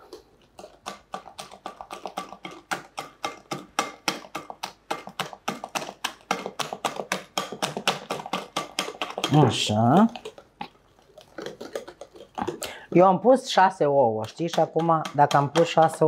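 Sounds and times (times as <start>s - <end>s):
whisk clicking against glass bowl: 14.2s - 16.0s.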